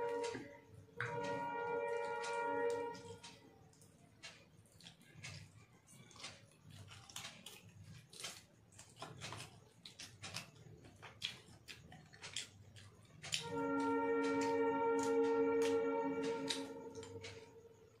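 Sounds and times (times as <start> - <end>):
fingers mixing rice on glass plate: 0.0 - 17.8
faint low hum: 0.0 - 18.0
chewing clicks and lip smacks: 2.1 - 13.5.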